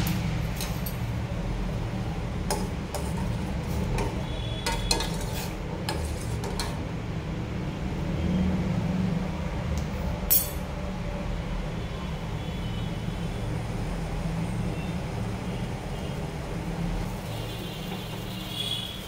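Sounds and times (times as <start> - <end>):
gas stove burner running: 0.0 - 6.9.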